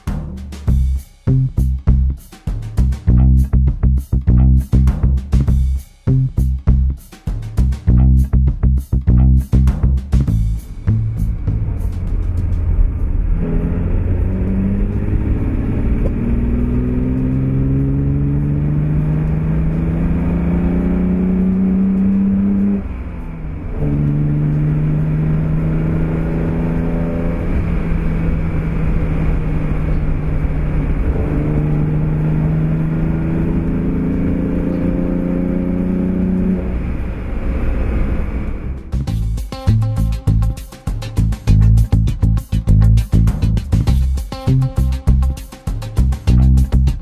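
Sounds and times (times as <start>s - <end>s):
car engine accelerating: 9.2s - 40.6s.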